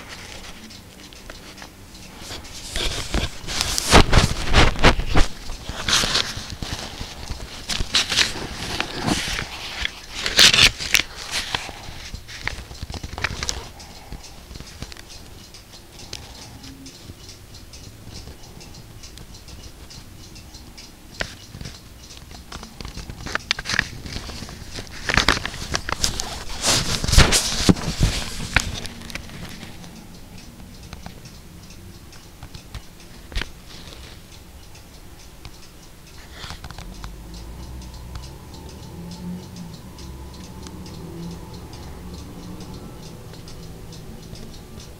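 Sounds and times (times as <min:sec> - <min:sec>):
book pages rustling: 0:00.0 - 0:14.2, 0:22.8 - 0:29.8.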